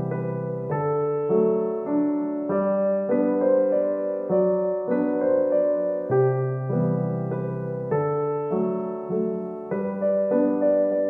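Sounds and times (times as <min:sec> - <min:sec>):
soft piano chords: 0:00.0 - 0:11.0.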